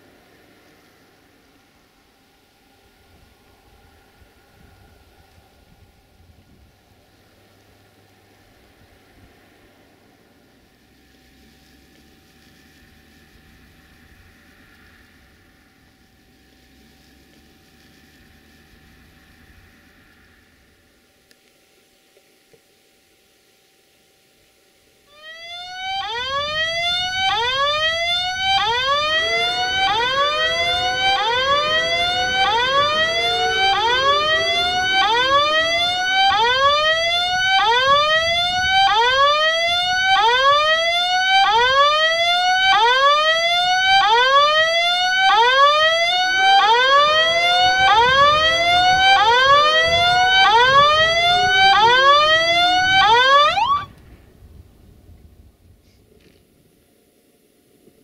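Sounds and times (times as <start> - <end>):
level crossing warning whoop: 25.1 - 53.9.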